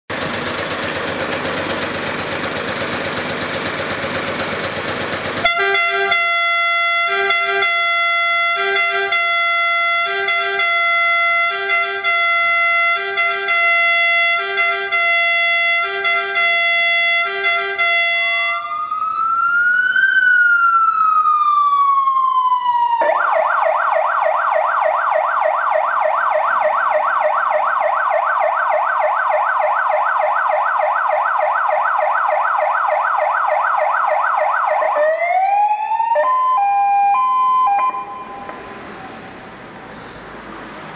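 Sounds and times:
fire engine air horns: 5.4s - 19.0s
electronic siren cycling tones: 5.5s - 39.2s.

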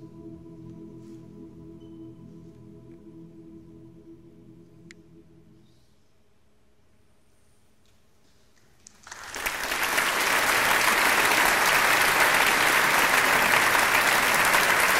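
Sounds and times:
audience applause: 8.9s - 14.9s.

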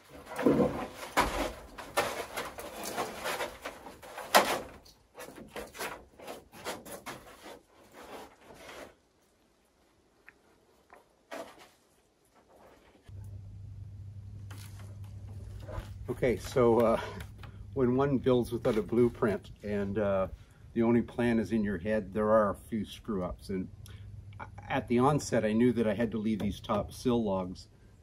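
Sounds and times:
wooden knocks and scuffs: 0.0s - 8.9s.

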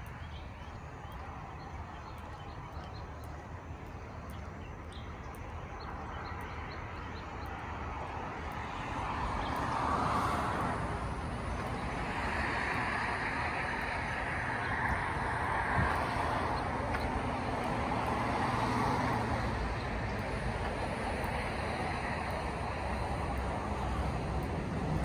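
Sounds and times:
highway traffic passing: 0.0s - 25.0s.

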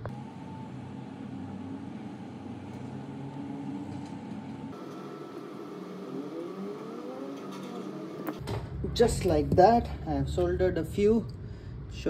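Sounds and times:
steady low background hum: 0.0s - 6.1s, 8.4s - 12.0s
faint rising whine: 0.0s - 9.1s.

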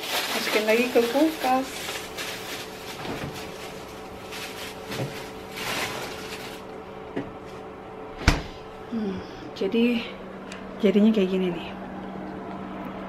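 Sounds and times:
cabbage rustling: 0.0s - 6.7s
steady low hum: 0.0s - 13.0s
refrigerator door shutting: 2.9s - 3.6s, 4.9s - 6.4s, 8.1s - 8.6s
refrigerator door opening: 2.9s - 3.9s, 4.8s - 6.6s, 8.1s - 8.6s.

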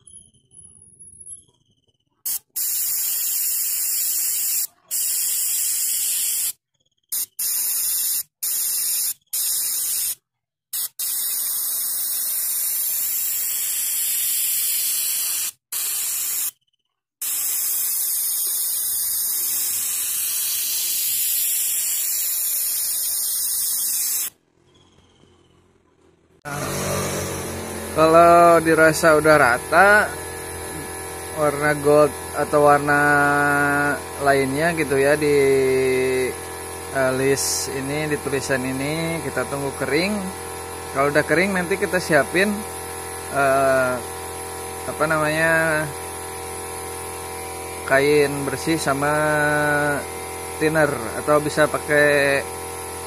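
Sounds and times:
airbrush spraying hiss: 2.3s - 10.2s, 10.8s - 16.6s, 17.2s - 24.3s, 26.5s - 40.8s
steady hum: 26.5s - 49.1s.

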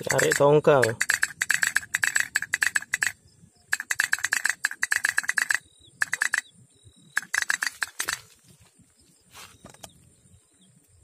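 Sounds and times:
toy steam boat ticking: 0.0s - 6.4s, 7.2s - 8.2s.

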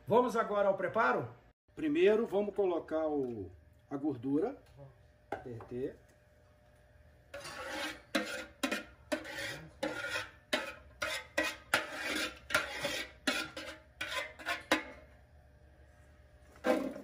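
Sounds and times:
metal spoon scraping a pot: 7.3s - 15.1s.

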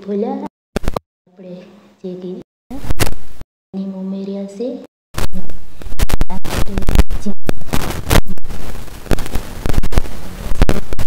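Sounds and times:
gravy crackling and popping: 5.2s - 11.0s.

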